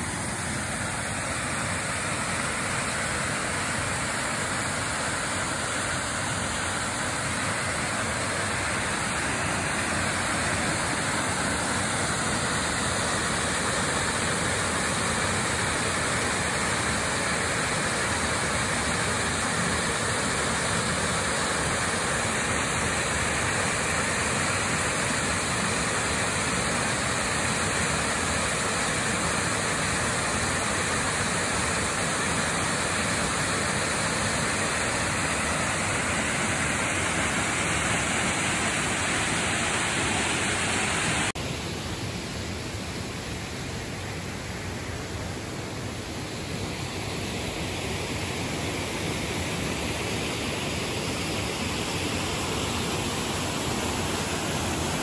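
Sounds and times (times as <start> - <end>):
waterfall rushing: 0.0 - 41.8.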